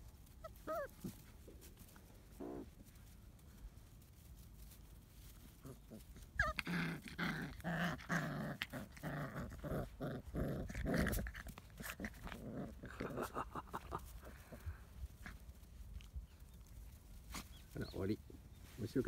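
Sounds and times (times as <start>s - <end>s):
puppies growling and yapping: 0.3s - 1.7s, 5.3s - 16.6s.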